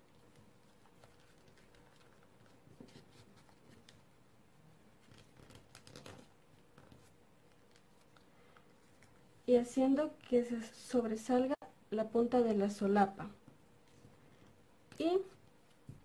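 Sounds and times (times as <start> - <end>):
paper rustling while folded: 0.0 - 4.1, 5.0 - 8.2
faint steady hum: 0.0 - 16.0.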